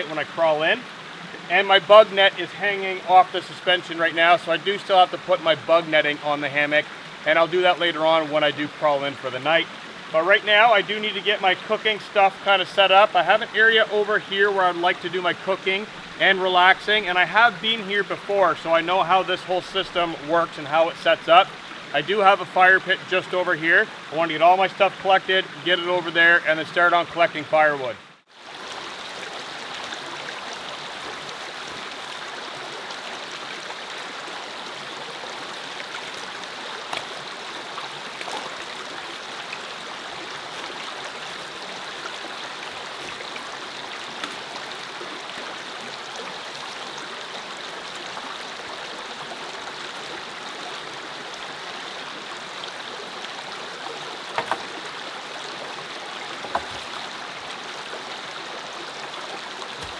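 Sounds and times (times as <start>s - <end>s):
creek running over rocks: 0.0s - 59.9s
sharp knocks: 54.4s - 54.7s, 56.4s - 56.9s.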